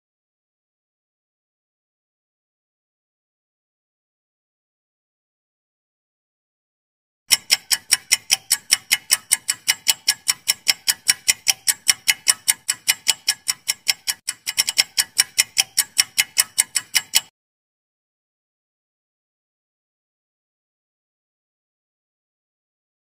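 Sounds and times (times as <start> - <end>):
fast clock ticking: 7.3 - 17.3.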